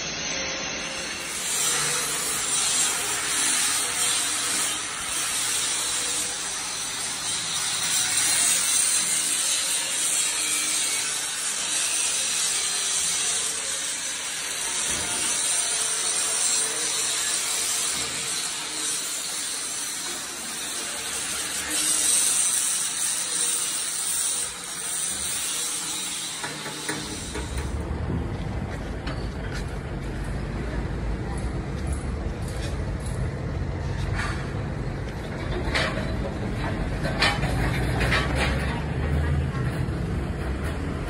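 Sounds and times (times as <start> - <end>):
metalworking tools hissing and rasping: 0.0 - 27.8.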